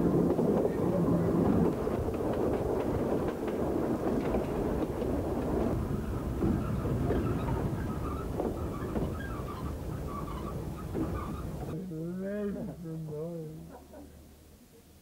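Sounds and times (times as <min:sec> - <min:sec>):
wheels clicking over rail joints: 0:00.0 - 0:11.8
train rumbling: 0:00.0 - 0:14.5.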